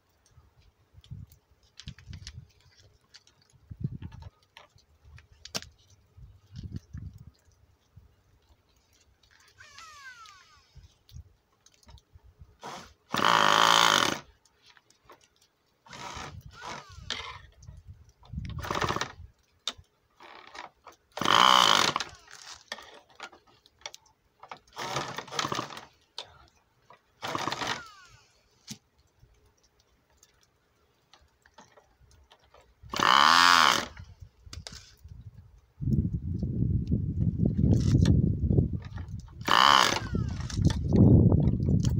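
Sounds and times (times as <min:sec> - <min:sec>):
electric starter spinning engine: 0:09.6 - 0:10.8, 0:12.6 - 0:14.3, 0:15.9 - 0:17.3, 0:21.2 - 0:22.4, 0:27.2 - 0:28.3, 0:32.9 - 0:34.0, 0:39.4 - 0:40.6.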